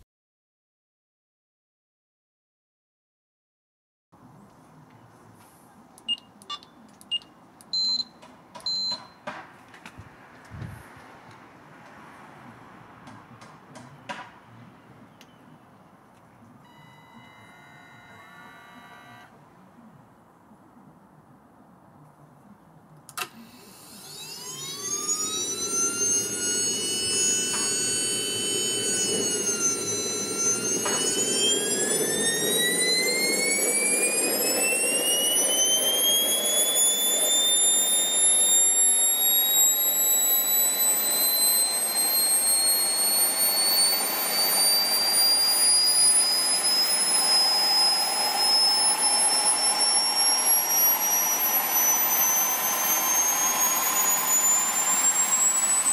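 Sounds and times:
jet turbine whine: 23.2 - 55.9.

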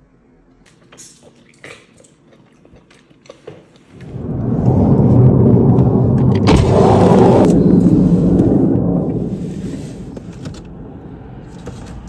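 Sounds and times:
jet aircraft rumble: 3.9 - 12.0.

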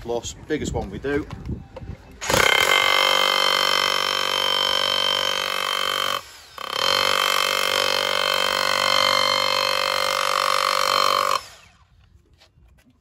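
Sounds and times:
rotary hammer drilling into concrete: 2.2 - 11.8.

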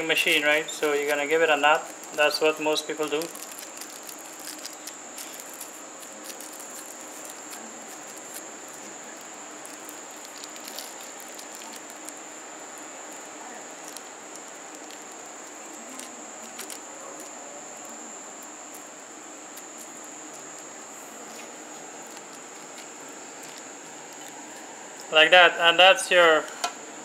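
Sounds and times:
plastic bag crinkling: 0.0 - 25.2
background hiss: 0.0 - 27.0.

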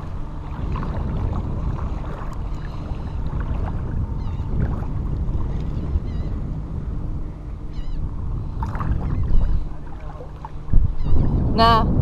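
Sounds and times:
water splashing while wading: 0.0 - 6.1, 8.4 - 11.4
wind buffeting microphone: 0.0 - 12.0.

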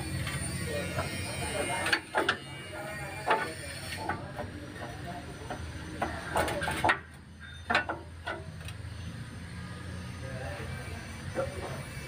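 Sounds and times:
metal clanks and knocks: 3.1 - 8.8.

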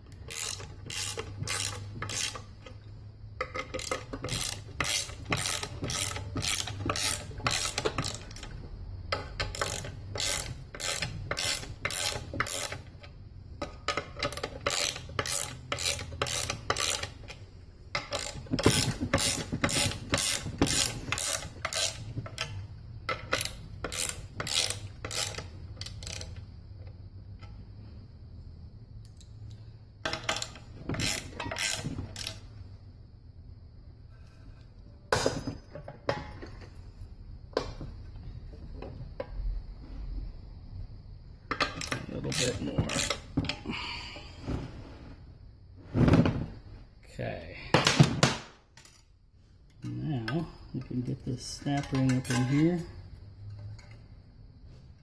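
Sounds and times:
ratchet wrench clicking: 0.1 - 2.6, 3.4 - 8.6, 9.3 - 13.1, 13.9 - 17.4, 18.0 - 26.4, 30.1 - 32.4, 41.8 - 43.3.

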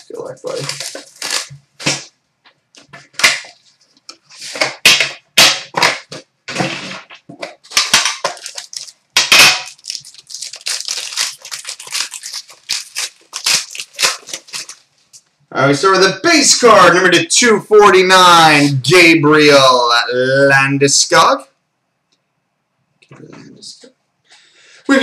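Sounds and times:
plastic wrap tearing and crinkling: 0.0 - 2.1, 6.6 - 15.2.

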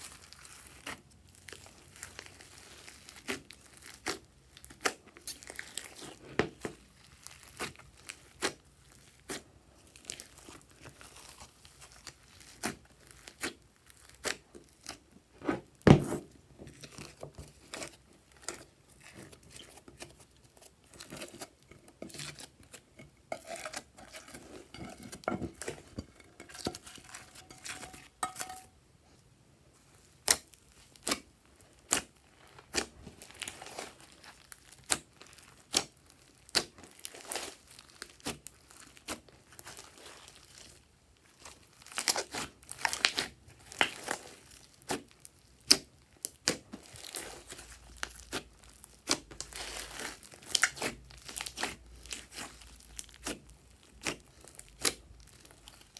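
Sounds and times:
hands squishing slime: 0.0 - 28.6, 29.8 - 55.9.

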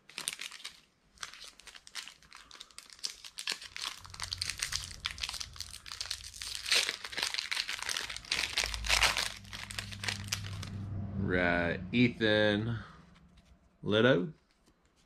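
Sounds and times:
foil wrapper crinkling: 0.0 - 10.8.

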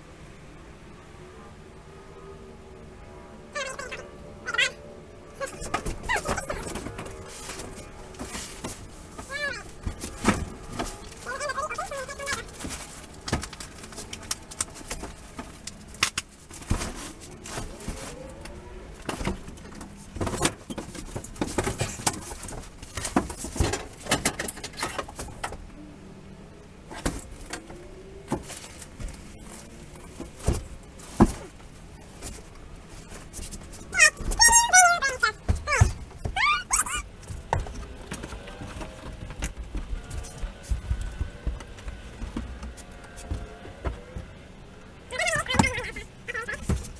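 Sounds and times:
faint pitched calls: 3.6 - 4.8, 33.8 - 37.1.

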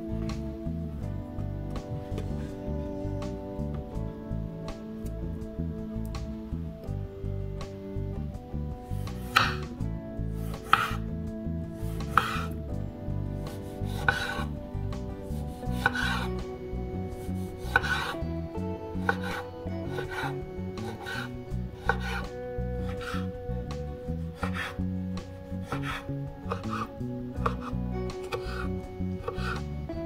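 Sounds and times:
knife slicing tomato on cutting board: 9.0 - 9.7, 10.4 - 11.0, 11.8 - 12.6, 13.4 - 14.6, 15.3 - 16.3, 17.2 - 18.2, 19.0 - 23.3, 24.4 - 24.8, 25.6 - 29.7.

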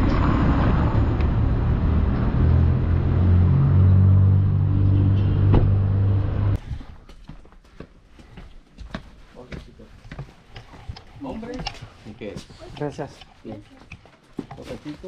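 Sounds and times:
street noise: 0.0 - 6.8.

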